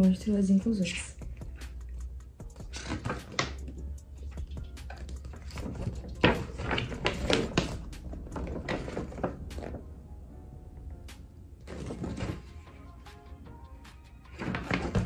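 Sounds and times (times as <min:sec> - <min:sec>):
paper poster rustling and crinkling: 0:02.5 - 0:09.9, 0:11.6 - 0:12.7, 0:14.3 - 0:15.0.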